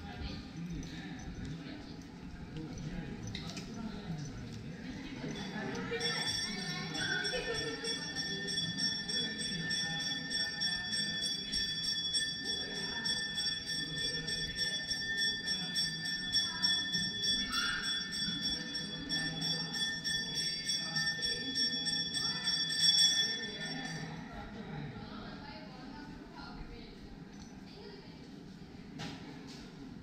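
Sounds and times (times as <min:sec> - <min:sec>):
murmur of people: 0:00.0 - 0:30.0
temple bell ringing: 0:05.2 - 0:24.3.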